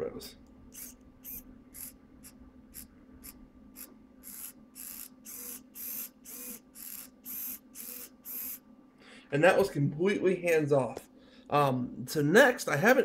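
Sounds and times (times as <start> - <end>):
steady low hum: 0.0 - 13.0
servos whirring: 0.7 - 8.6.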